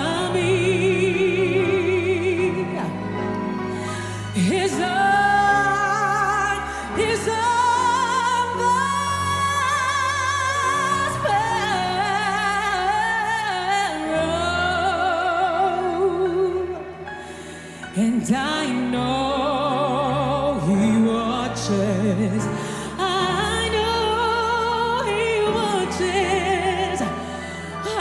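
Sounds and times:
woman singing: 0:00.0 - 0:03.3, 0:03.9 - 0:17.1, 0:17.9 - 0:28.0
backing music: 0:00.0 - 0:28.0.

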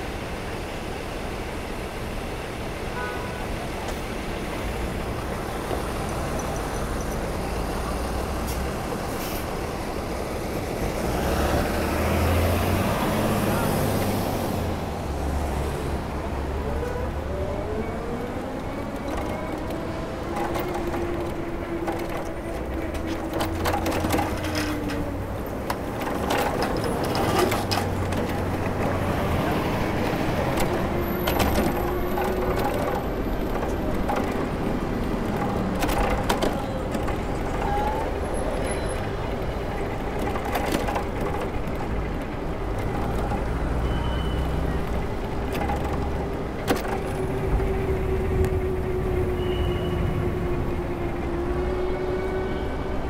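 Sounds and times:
traffic rumble: 0:00.0 - 0:53.0
bicycle clicks and knocks: 0:30.5 - 0:37.7.

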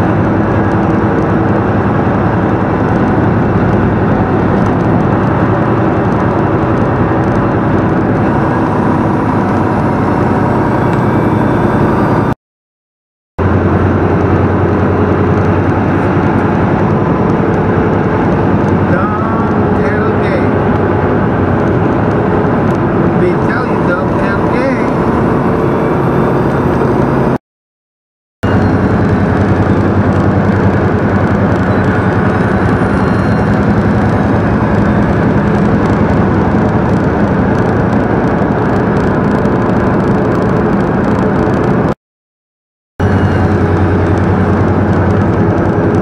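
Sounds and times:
road noise: 0:00.0 - 0:12.4, 0:13.4 - 0:27.4, 0:28.4 - 0:42.0, 0:43.0 - 0:46.0
truck diesel engine droning: 0:00.0 - 0:12.4, 0:13.4 - 0:27.4, 0:28.4 - 0:42.0, 0:43.0 - 0:46.0.

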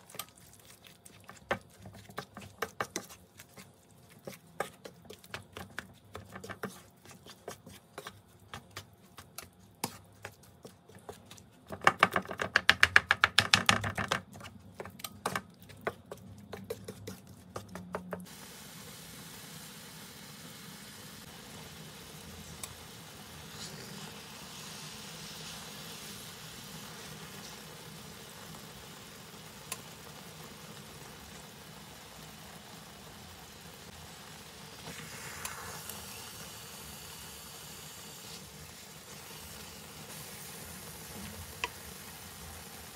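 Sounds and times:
wooden spatula knocking a pan: 0:11.7 - 0:16.8
sauce simmering hiss: 0:18.2 - 0:42.9.

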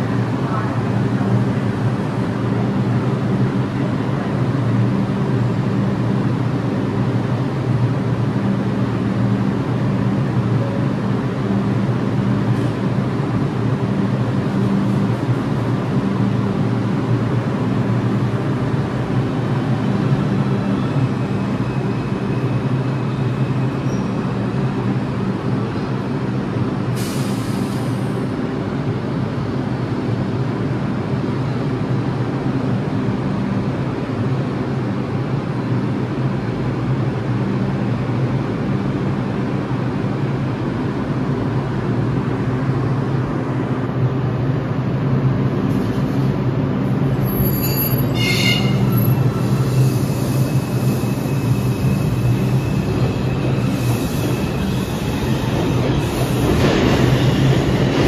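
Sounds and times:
subway train motors droning: 0:00.0 - 0:58.0
sharp hiss of air: 0:26.9 - 0:28.1, 0:49.3 - 0:52.4.

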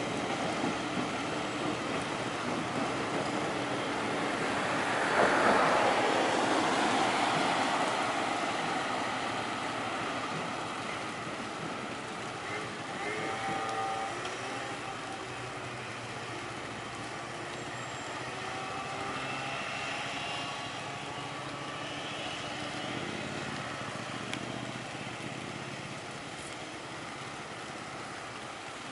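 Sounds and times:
car engines running: 0:00.0 - 0:28.9.

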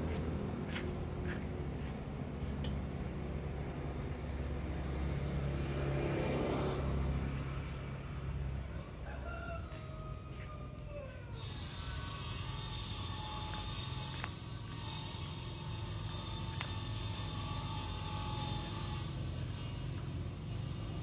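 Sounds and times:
vehicle passing: 0:00.0 - 0:10.5
rooster crowing: 0:08.6 - 0:11.8.

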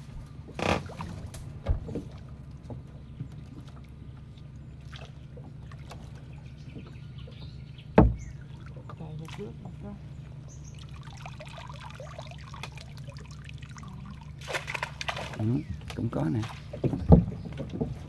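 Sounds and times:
knocks on plastic boat: 0:08.0 - 0:08.3.

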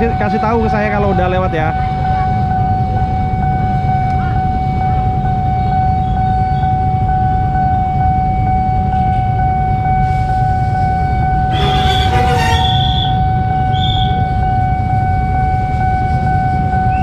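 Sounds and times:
level crossing alarm tone: 0:00.0 - 0:17.0
traffic rumble: 0:00.0 - 0:17.0.

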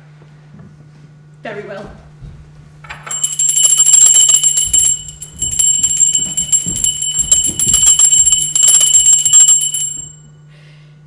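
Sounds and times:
small bell ringing rapidly: 0:02.9 - 0:10.3.

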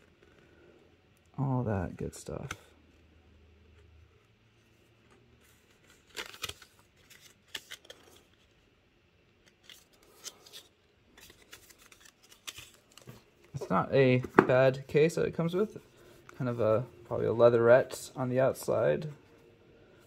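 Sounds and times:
paper rustling: 0:04.7 - 0:08.6, 0:09.4 - 0:14.5.

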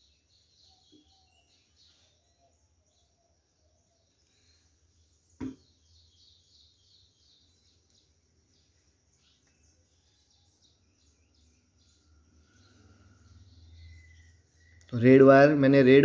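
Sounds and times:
faint bird chirping: 0:00.0 - 0:16.0
sharp knock: 0:05.4 - 0:05.6.

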